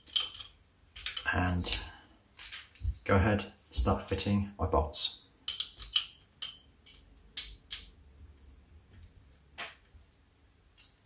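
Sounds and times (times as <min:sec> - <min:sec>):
small metal bolts clicking: 0:00.0 - 0:02.9, 0:05.4 - 0:08.0.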